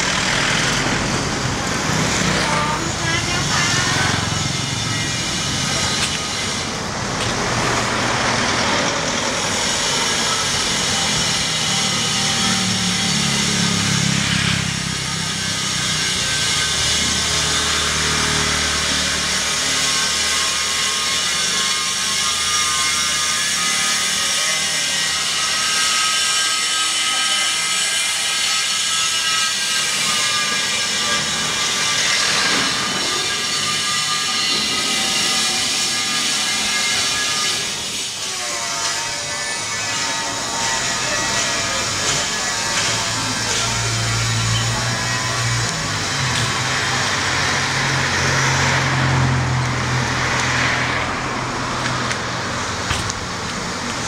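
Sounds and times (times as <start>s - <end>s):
motor vehicles passing: 0.0s - 20.4s, 39.9s - 54.0s.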